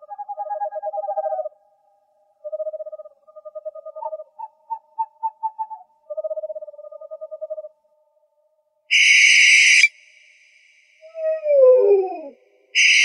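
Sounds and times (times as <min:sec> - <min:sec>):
owl trilling calls: 0:00.0 - 0:01.6, 0:02.4 - 0:07.7, 0:08.9 - 0:10.0, 0:11.0 - 0:13.0
higher pulsed owl trill: 0:02.4 - 0:07.7, 0:08.9 - 0:13.0.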